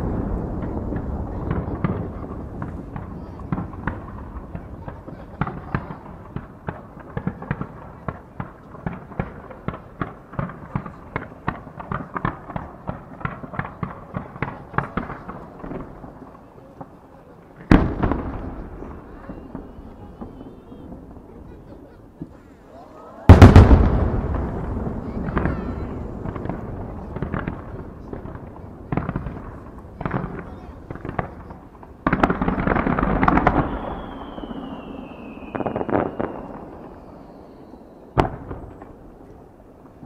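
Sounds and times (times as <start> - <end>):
firework boom echoing: 0.0 - 16.2, 17.6 - 22.4, 23.3 - 39.2
fireworks popping and cracking: 0.0 - 22.5, 23.3 - 40.0
fireworks low rumble: 0.0 - 40.0.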